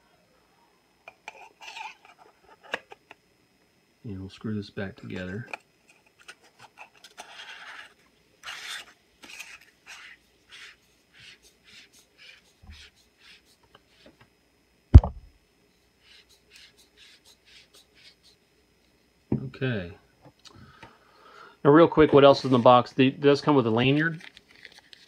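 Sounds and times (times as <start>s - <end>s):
sharp thump: 15.0s - 15.3s.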